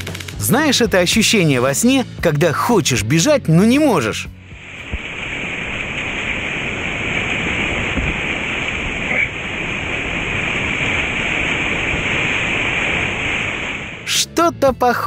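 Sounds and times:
whitewater rushing and churning: 0:03.8 - 0:15.0.

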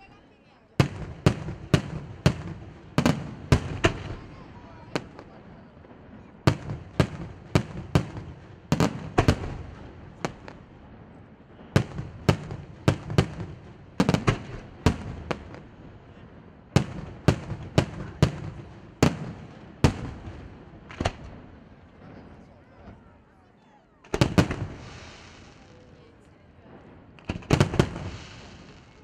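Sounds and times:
firework shells bursting: 0:27.1 - 0:29.0.

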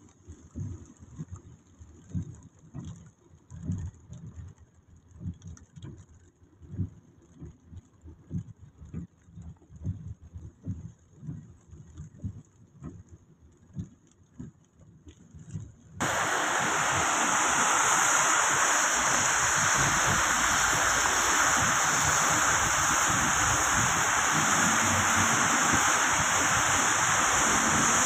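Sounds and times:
raindrops tapping on car: 0:00.2 - 0:18.9
tyres on wet road: 0:16.0 - 0:28.0
wind rushing through car window: 0:16.0 - 0:28.0.

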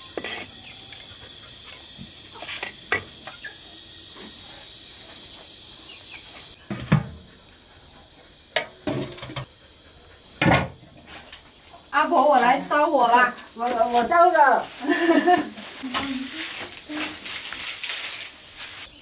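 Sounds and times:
insects droning: 0:00.0 - 0:19.0
metal clanks and thumps: 0:06.6 - 0:07.3, 0:08.6 - 0:09.5, 0:10.4 - 0:10.8.

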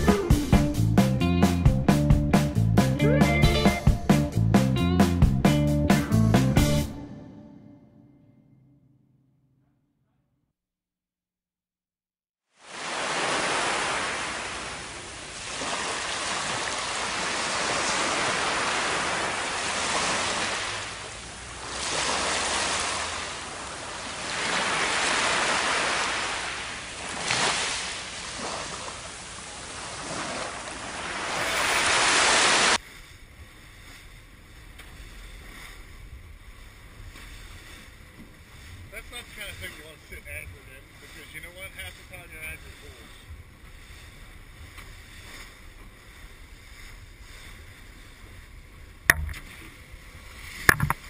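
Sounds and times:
surf washing up a beach: 0:12.5 - 0:51.0
small boat engine on water: 0:12.6 - 0:51.0.

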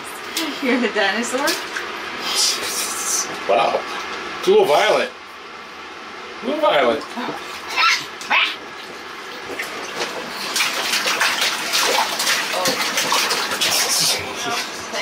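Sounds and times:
water splashing in bathtub: 0:00.0 - 0:05.1, 0:06.6 - 0:15.0
child squealing: 0:07.7 - 0:08.6.

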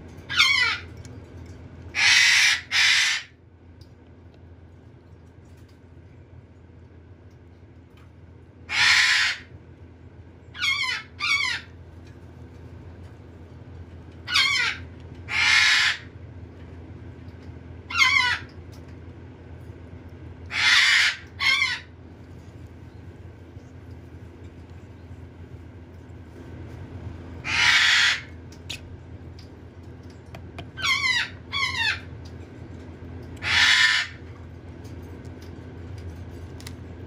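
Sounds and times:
parrot chick squawking: 0:00.3 - 0:00.9, 0:02.0 - 0:03.4, 0:08.7 - 0:09.5, 0:14.3 - 0:16.1, 0:17.9 - 0:18.5, 0:20.5 - 0:21.9, 0:27.4 - 0:28.4, 0:30.6 - 0:32.1, 0:33.4 - 0:34.2.

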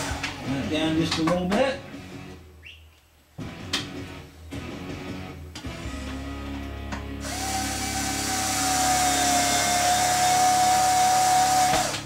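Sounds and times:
electric drill-driver whining: 0:07.2 - 0:12.0.

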